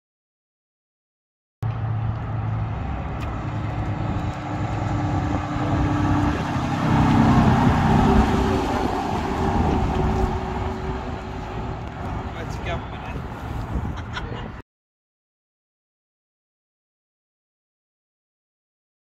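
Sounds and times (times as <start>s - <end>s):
bus engine passing: 1.6s - 14.6s.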